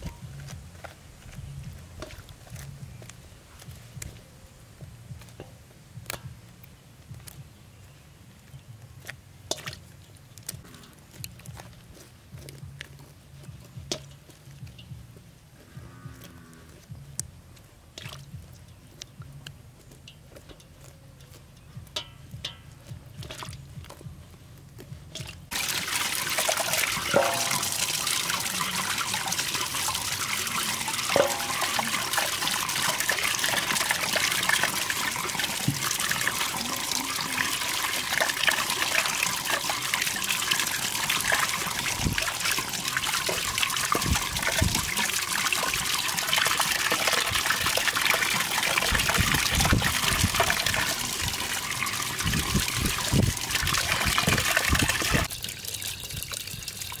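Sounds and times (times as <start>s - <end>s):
water splashing: 0.0s - 2.8s, 25.2s - 57.0s
tap water pouring: 25.2s - 57.0s.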